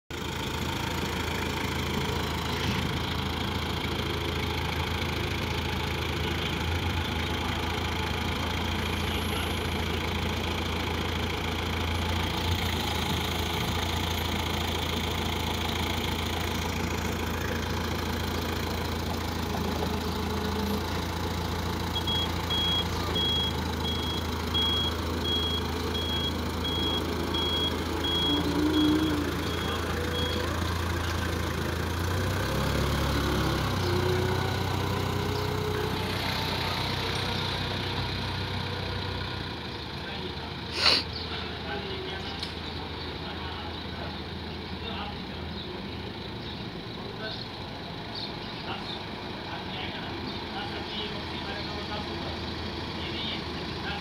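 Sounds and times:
forklift engine humming: 0.1s - 54.0s
reversing alarm beeping: 21.9s - 30.7s.

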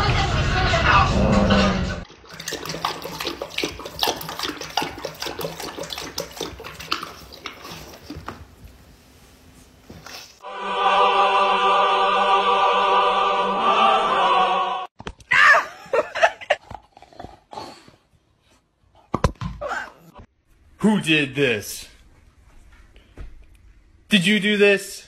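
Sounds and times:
dog lapping water from bowl: 2.0s - 8.5s.

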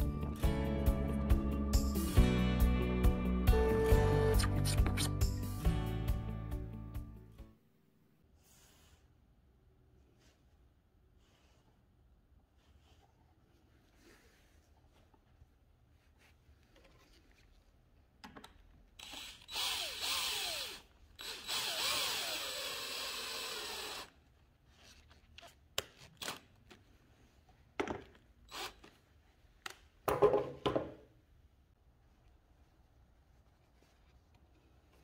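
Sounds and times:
drill driving a screw into wood: 19.0s - 24.1s.

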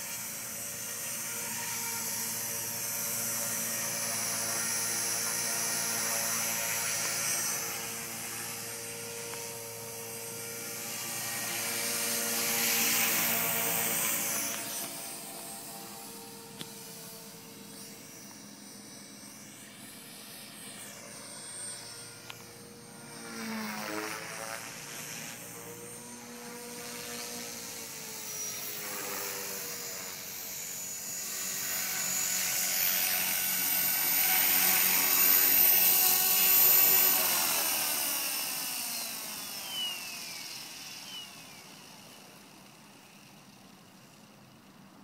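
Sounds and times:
model helicopter rotor whine: 0.0s - 45.0s.

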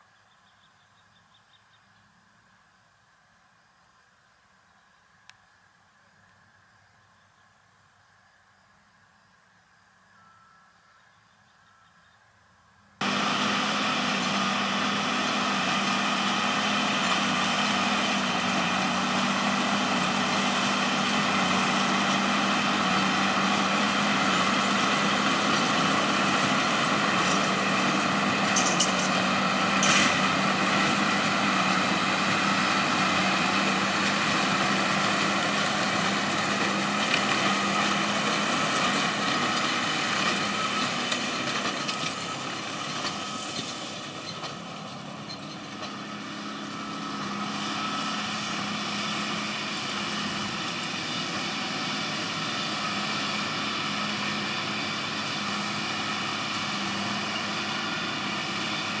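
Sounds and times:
tractor and baler mechanical drone: 13.0s - 59.0s.

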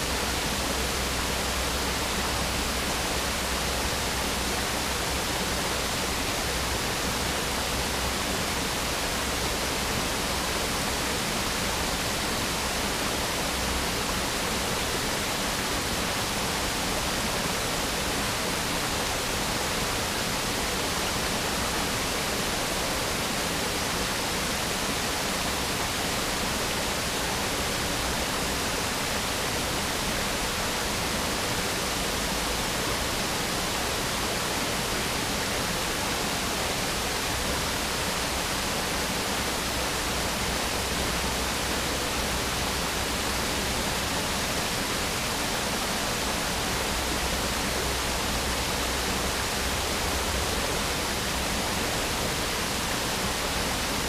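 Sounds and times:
water rushing over rocks: 0.0s - 54.0s.

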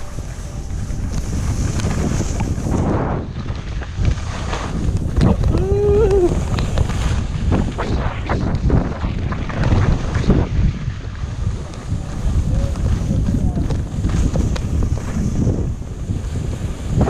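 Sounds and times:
wind rumbling on microphone: 0.0s - 17.0s
person calling out: 5.3s - 6.4s.

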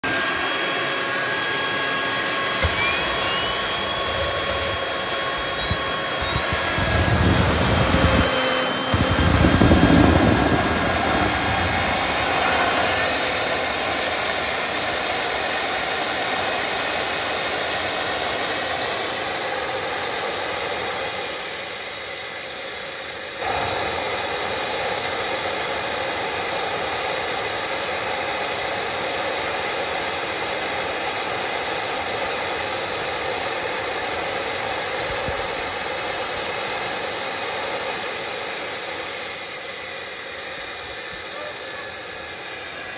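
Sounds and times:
gas turbine whining: 0.0s - 42.9s
heavy rumble: 2.6s - 14.2s.

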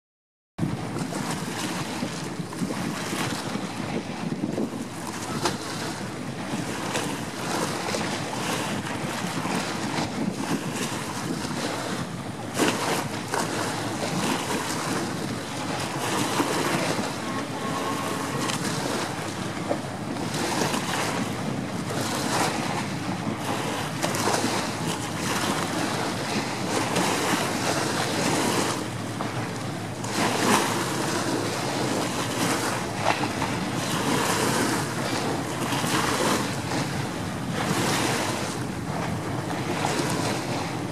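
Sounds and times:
churning wake water: 0.6s - 40.9s
powerboat engines: 0.6s - 40.9s
wind buffeting microphone: 0.6s - 40.9s.

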